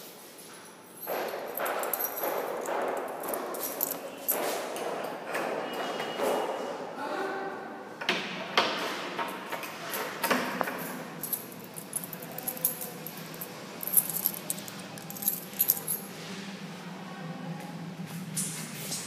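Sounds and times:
padlock and chain rattling: 0:01.0 - 0:04.4, 0:10.5 - 0:16.1.

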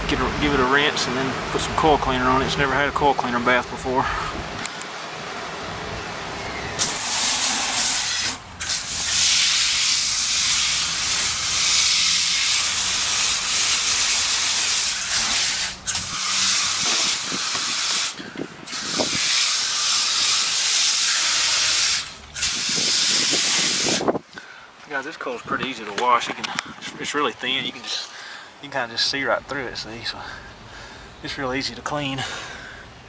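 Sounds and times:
hose nozzle spraying water: 0:06.8 - 0:24.1.

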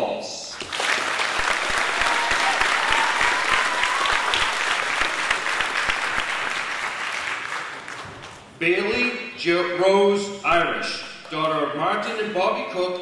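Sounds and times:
audience applauding: 0:00.6 - 0:08.5
high call from crowd: 0:01.7 - 0:05.0.

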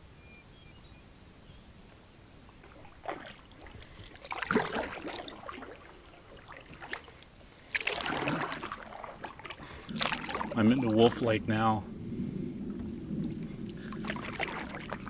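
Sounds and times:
paddle swishing water: 0:02.4 - 0:15.0
water dripping and trickling: 0:02.5 - 0:15.0.

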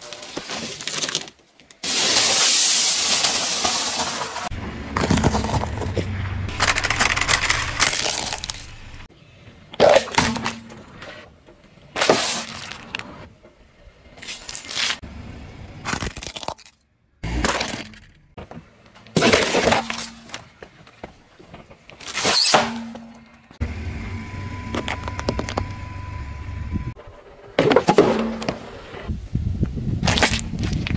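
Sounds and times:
car tyre crushing objects: 0:00.0 - 0:09.1, 0:15.8 - 0:23.4
cracking and crunching: 0:00.0 - 0:09.1, 0:15.8 - 0:18.4.

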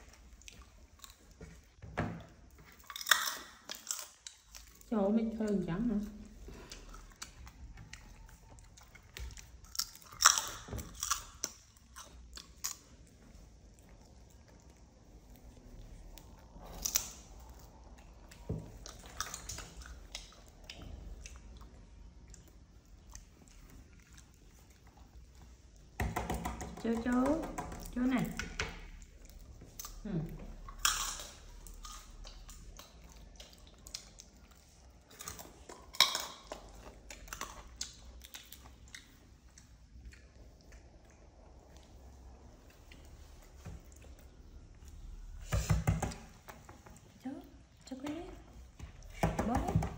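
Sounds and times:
monkeys chewing crunchy snacks: 0:02.4 - 0:25.9, 0:26.5 - 0:44.7.

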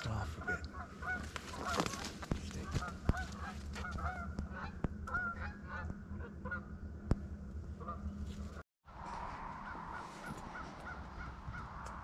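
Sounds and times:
geese honking: 0:00.1 - 0:06.7, 0:07.8 - 0:08.1.

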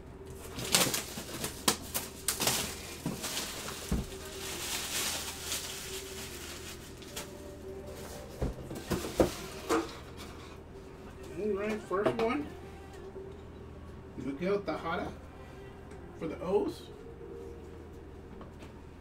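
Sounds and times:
cardboard rustling and scraping: 0:00.4 - 0:07.3.

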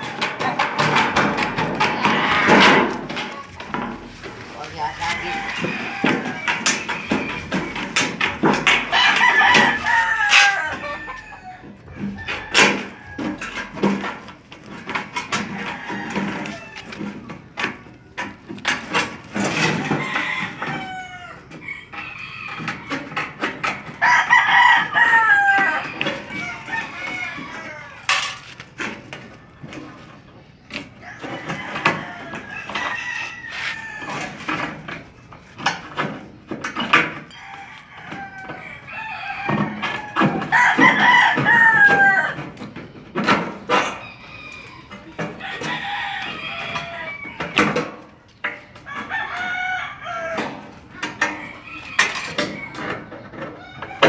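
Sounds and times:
rooster crowing: 0:04.8 - 0:13.8, 0:15.5 - 0:17.2, 0:19.8 - 0:23.2, 0:23.9 - 0:28.3, 0:31.0 - 0:34.7, 0:37.3 - 0:42.6, 0:43.9 - 0:47.9, 0:48.8 - 0:54.0.

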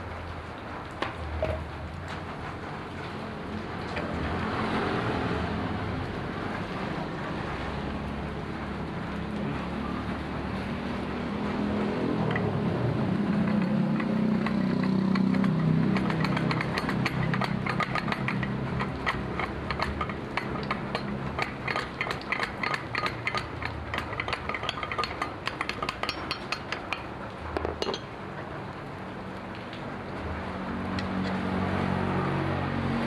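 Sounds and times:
hand tools clicking on metal: 0:13.4 - 0:28.1.

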